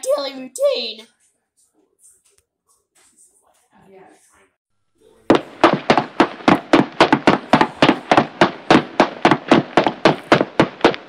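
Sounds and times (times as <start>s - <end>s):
quick footsteps: 5.3s - 11.0s.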